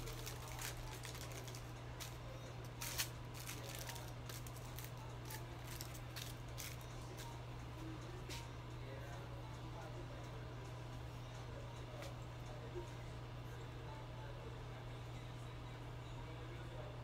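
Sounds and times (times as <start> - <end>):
hair foils crinkling: 0.0 - 6.9
steady low hum: 0.0 - 17.0.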